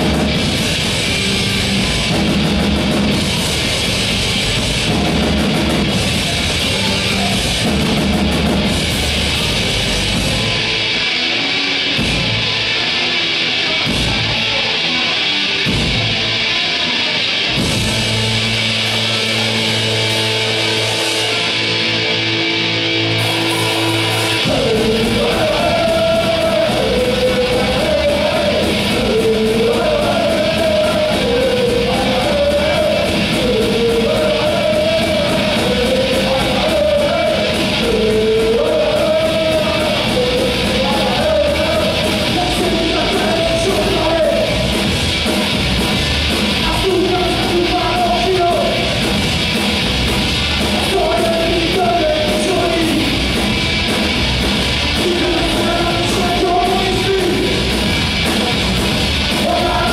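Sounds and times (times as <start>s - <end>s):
drums: 0.0s - 59.9s
electric guitar and bass chords: 0.0s - 59.9s
punk rock band playing: 0.0s - 59.9s
shouted sung lead vocal: 23.2s - 44.8s, 46.6s - 49.0s, 50.7s - 53.4s, 54.9s - 57.8s, 58.5s - 59.9s.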